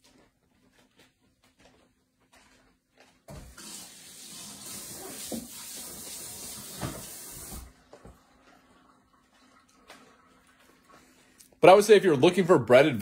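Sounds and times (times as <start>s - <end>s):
water running from a tap: 3.5s - 11.1s.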